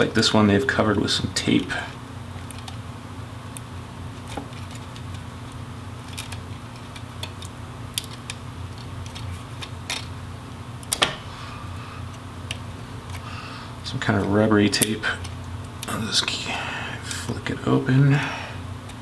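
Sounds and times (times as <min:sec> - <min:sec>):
low background hum: 0:00.0 - 0:19.0
fingernail picking at rubbery tape: 0:06.0 - 0:10.1.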